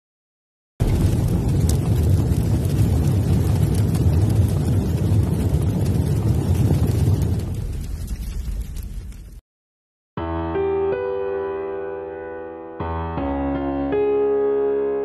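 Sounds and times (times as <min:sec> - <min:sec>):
deep rumbling intro effect: 0:00.8 - 0:09.4.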